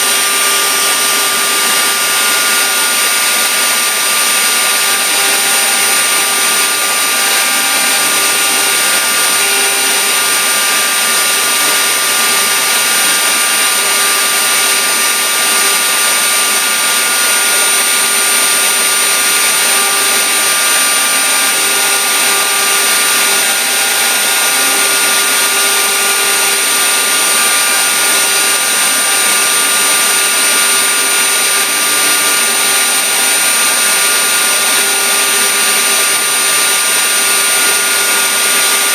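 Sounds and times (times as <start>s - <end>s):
router spindle high whine: 0.0s - 38.9s.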